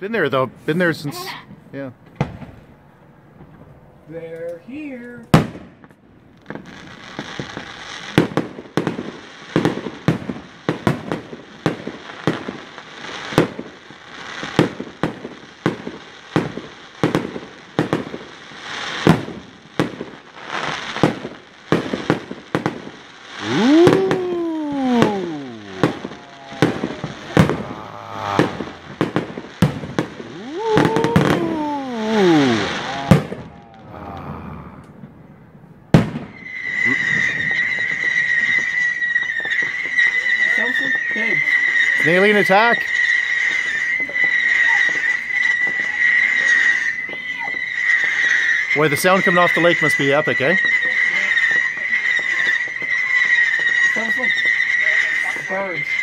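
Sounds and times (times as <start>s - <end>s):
fireworks bursting with sharp bangs: 0.0s - 4.0s, 4.7s - 56.0s
fireworks crackle: 0.0s - 35.3s, 35.9s - 56.0s
rising and falling whistle tone: 23.4s - 29.0s, 30.2s - 32.9s, 36.3s - 56.0s.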